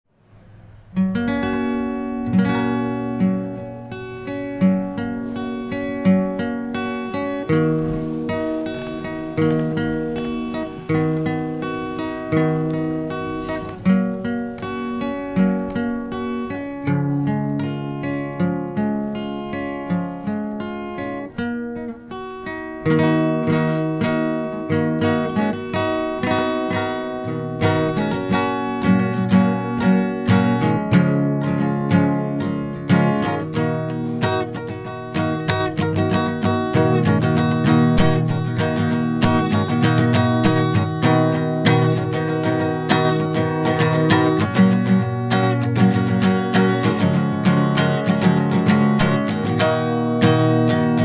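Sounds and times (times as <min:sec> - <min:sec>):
acoustic guitar strumming chords: 0:00.2 - 0:51.0.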